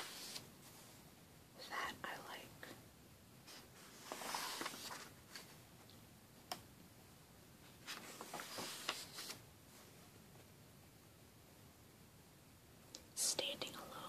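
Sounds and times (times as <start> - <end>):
book pages turning: 0.0 - 0.5, 3.5 - 5.5, 7.8 - 9.4.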